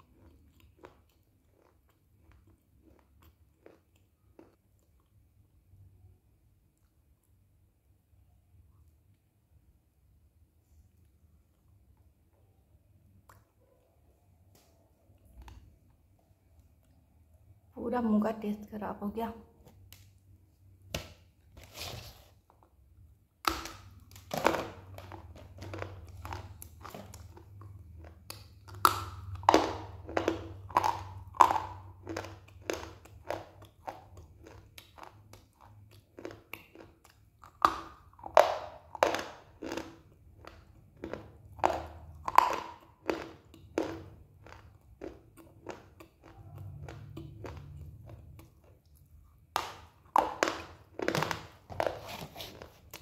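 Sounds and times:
quiet chewing: 0.0 - 5.5, 6.6 - 7.6, 10.6 - 17.6, 24.1 - 53.0.

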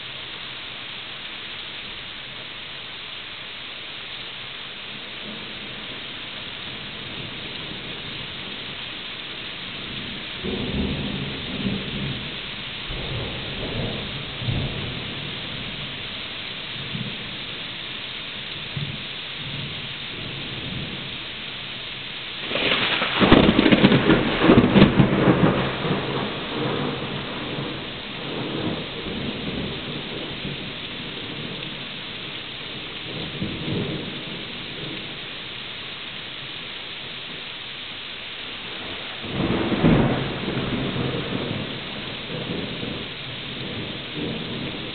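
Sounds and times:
steady rain: 0.0 - 44.9
rolling thunder: 9.8 - 16.0, 22.4 - 31.8, 32.7 - 35.2, 38.6 - 44.9.

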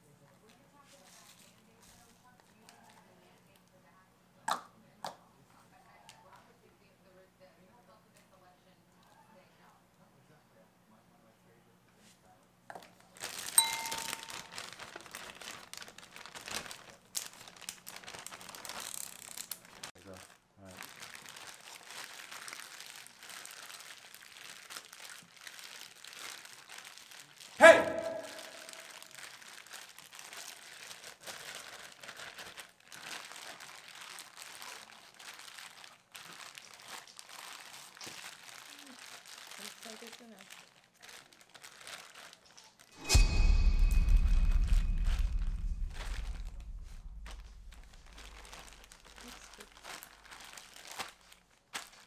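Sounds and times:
crinkling and rustling: 0.4 - 3.0, 12.8 - 27.6, 28.2 - 42.9, 45.2 - 52.0
short ringing ding: 13.6 - 14.6.

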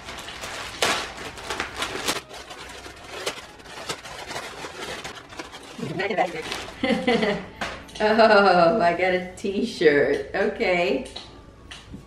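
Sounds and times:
wrapping paper crinkling and tearing: 0.0 - 7.2.

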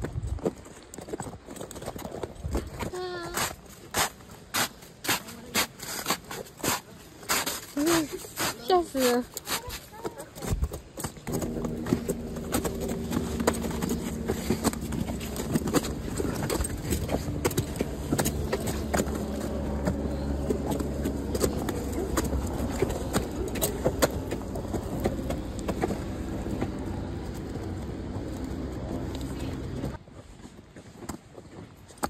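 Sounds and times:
steady low rumble: 11.3 - 30.0.

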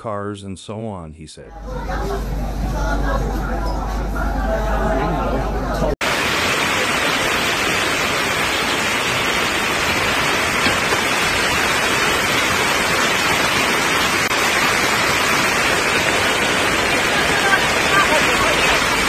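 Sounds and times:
floodwater rushing: 6.0 - 19.0
torrential rain: 6.0 - 19.0.

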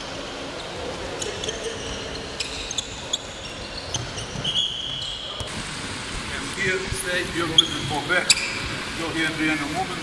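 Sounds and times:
shoes squeaking: 0.5 - 5.5, 7.2 - 8.9
high squeal: 1.3 - 5.4, 7.5 - 8.7.

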